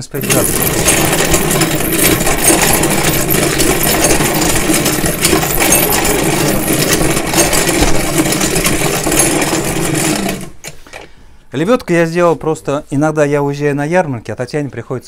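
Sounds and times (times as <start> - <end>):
winch rattling hum: 0.2 - 10.7.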